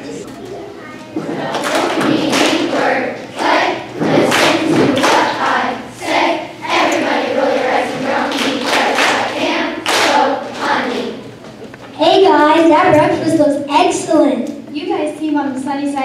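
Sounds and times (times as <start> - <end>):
children's choir singing: 1.2 - 11.4.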